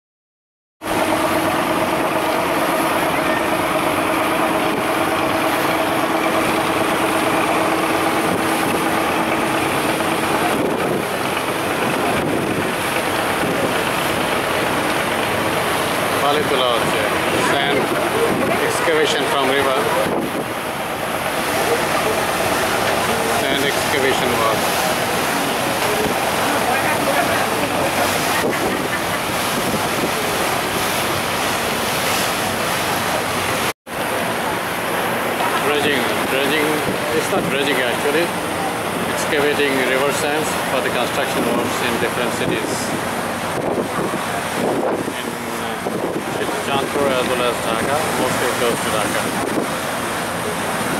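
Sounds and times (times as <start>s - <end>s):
boat engines running: 0.8s - 50.9s
constant rushing noise: 0.8s - 50.9s
steady engine hum: 0.8s - 50.9s
wind on microphone: 3.9s - 15.3s, 19.8s - 20.8s, 28.0s - 31.1s, 42.4s - 50.9s.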